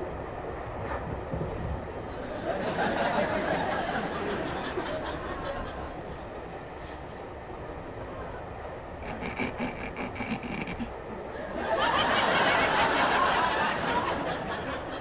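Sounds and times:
railway carriage rumble: 0.0s - 15.0s
audience laughter: 2.1s - 7.0s, 9.0s - 15.0s.

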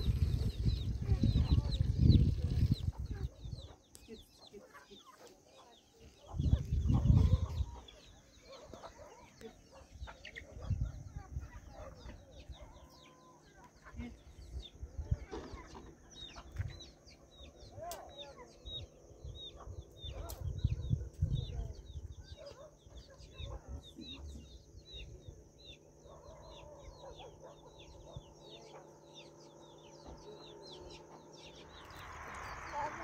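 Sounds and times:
chickens clucking: 0.2s - 17.5s.

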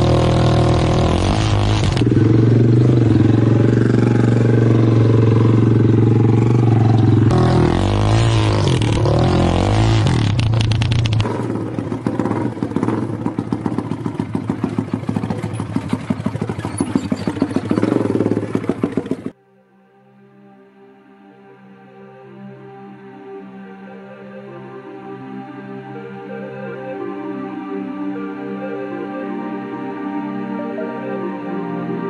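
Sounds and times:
small engine revving: 0.0s - 19.4s.

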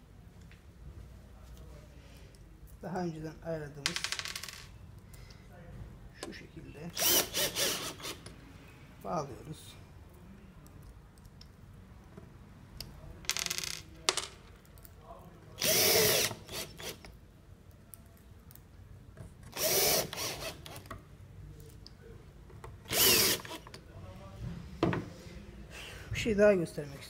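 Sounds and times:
cordless drill driving screws: 7.0s - 8.2s, 15.6s - 17.1s, 19.5s - 20.9s, 22.9s - 23.7s.

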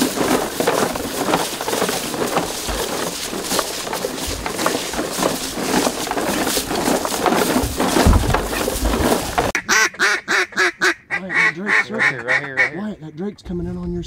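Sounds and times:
footsteps crunching on dry leaves: 0.0s - 9.6s
gear and bags rustling: 0.0s - 9.6s
ducks quacking: 9.5s - 13.2s.

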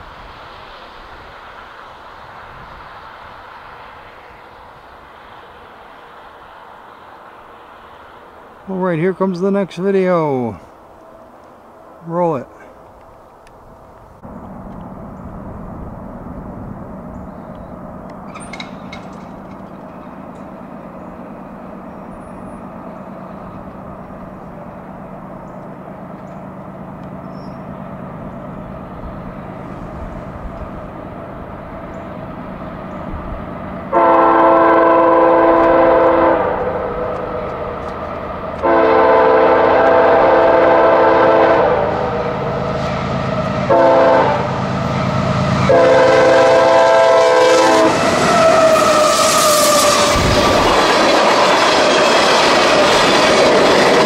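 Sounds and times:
diesel locomotive engine rumble: 0.0s - 54.0s
train air horn blasts: 33.9s - 37.2s, 38.6s - 50.4s.

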